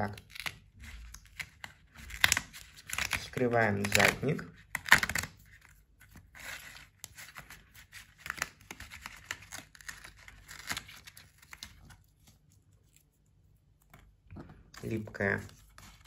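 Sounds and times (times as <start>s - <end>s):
cardboard ripping: 0.1s - 5.6s, 6.3s - 12.3s
paper rustling: 0.6s - 16.0s.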